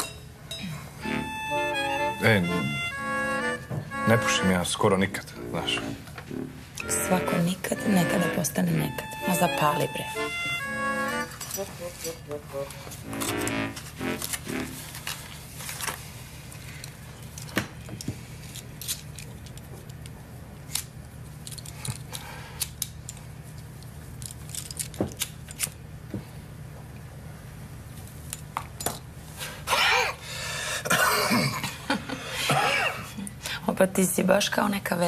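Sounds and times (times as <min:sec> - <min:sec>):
small clicks and clinks: 0:20.7 - 0:25.8
man coughing: 0:30.8 - 0:31.8, 0:32.4 - 0:33.2.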